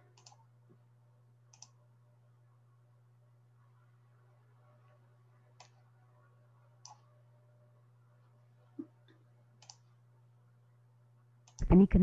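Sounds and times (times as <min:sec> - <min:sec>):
steady low hum: 0:00.0 - 0:12.0
computer mouse clicks: 0:00.2 - 0:00.4, 0:01.5 - 0:01.8, 0:05.6 - 0:05.8, 0:06.8 - 0:07.1, 0:09.6 - 0:09.9, 0:11.4 - 0:11.7.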